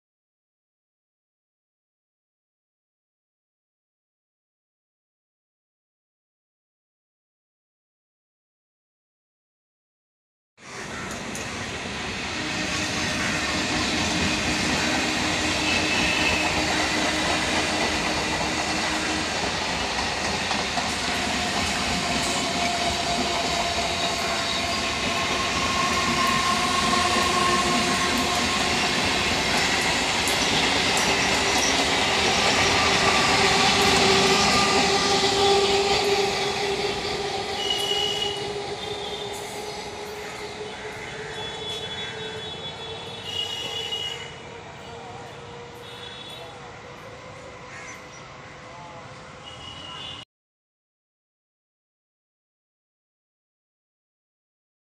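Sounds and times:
wheels rumbling on rails: 10.8s - 50.2s.

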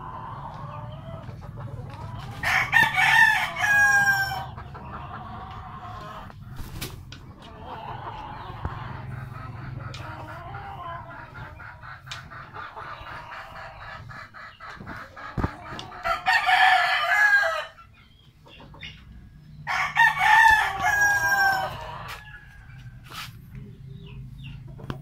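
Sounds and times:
rooster clucking: 0.0s - 25.0s
rooster crowing: 2.4s - 4.6s, 16.0s - 17.8s, 19.6s - 22.7s.

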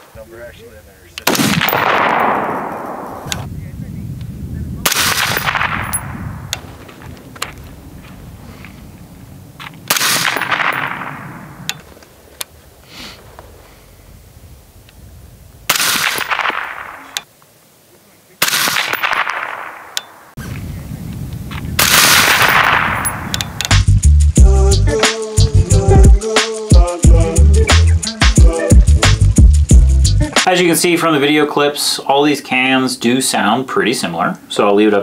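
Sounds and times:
suppressed rifle shots: 1.2s - 3.5s, 4.8s - 6.7s, 9.8s - 12.0s, 15.7s - 17.3s, 18.4s - 20.3s, 21.8s - 23.7s
music with heavy beat: 23.7s - 30.5s.

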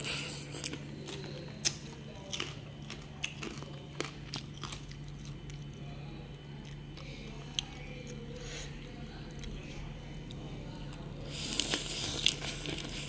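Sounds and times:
chewing sounds: 0.0s - 13.0s
crunching prawn shells: 0.5s - 8.2s.

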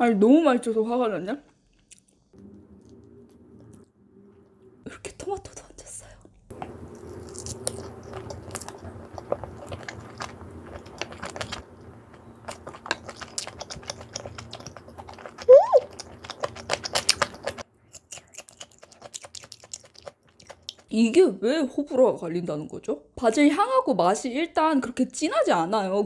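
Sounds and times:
background hum: 0.0s - 21.2s
biting and chewing crunches: 6.5s - 20.9s
tone sweeping up and down: 15.5s - 15.8s.

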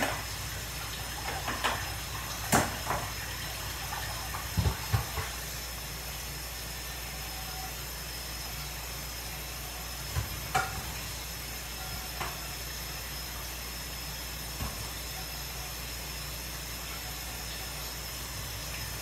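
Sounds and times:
things clattering on kitchen counter: 0.0s - 0.3s, 1.2s - 3.2s, 4.0s - 5.4s, 10.1s - 11.0s.

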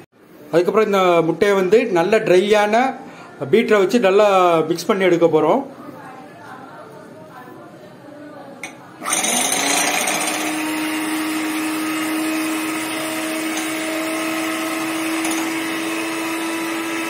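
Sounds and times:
electric hand mixer whirring: 9.0s - 17.0s.

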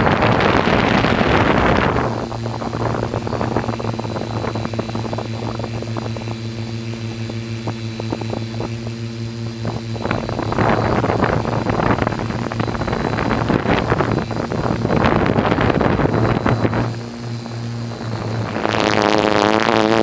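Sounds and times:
drone propellers humming: 0.0s - 20.0s
wind buffeting microphone: 0.0s - 20.0s.

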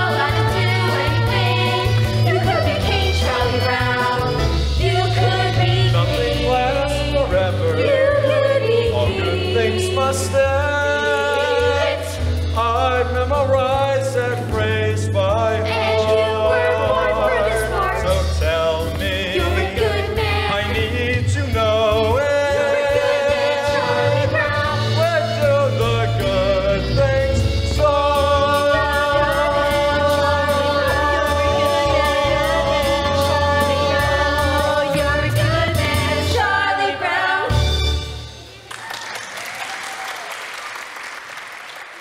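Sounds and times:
instrumental accompaniment: 0.0s - 38.7s
audience applause: 38.6s - 42.0s.

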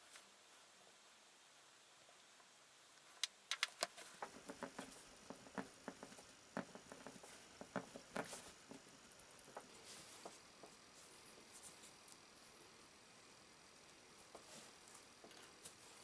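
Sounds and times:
pen tapping and scratching leather: 3.6s - 10.8s.

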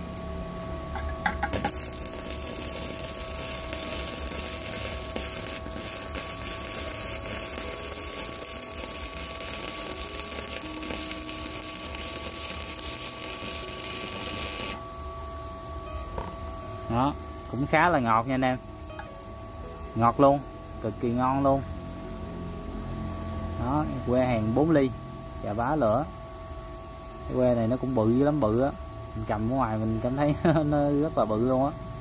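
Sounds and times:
welding arc crackling: 1.0s - 14.8s.

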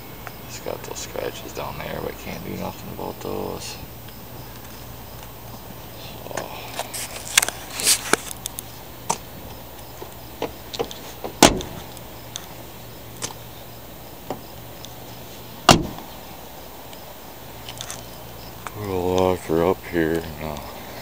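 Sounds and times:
light clicks and handling noise: 6.3s - 12.6s
car doors slamming: 10.0s - 12.0s, 15.6s - 16.2s.

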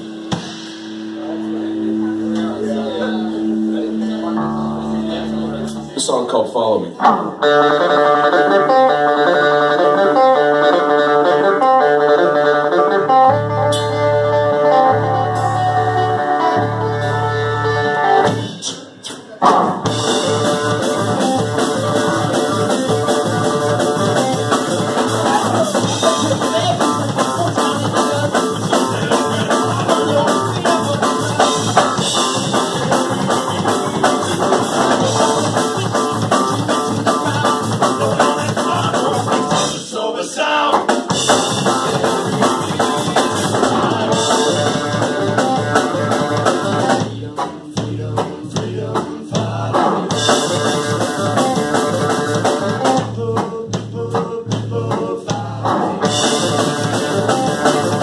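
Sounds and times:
band playing fast metal bluegrass: 0.0s - 58.0s
quick steady drum beat: 19.9s - 39.9s, 40.6s - 58.0s.

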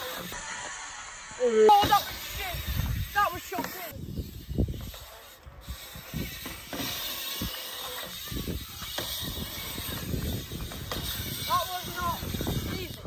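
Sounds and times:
bike tyres rolling on concrete: 0.0s - 13.0s.

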